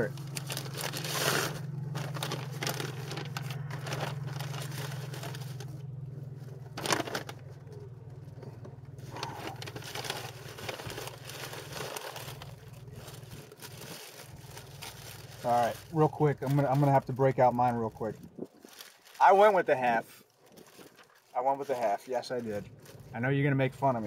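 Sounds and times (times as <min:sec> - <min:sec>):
paper wrapping crinkling: 0:00.0 - 0:08.3, 0:09.0 - 0:23.2
low hum: 0:00.0 - 0:15.9.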